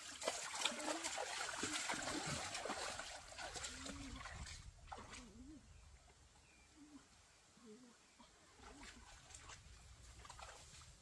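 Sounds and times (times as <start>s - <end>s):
water splashing in stream: 0.0s - 5.5s, 8.5s - 11.0s.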